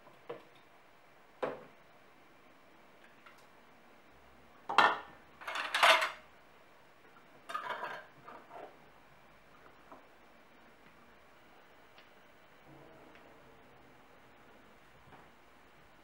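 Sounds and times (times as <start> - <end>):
kitchenware clinking and clattering: 4.7 - 6.2, 7.5 - 8.7.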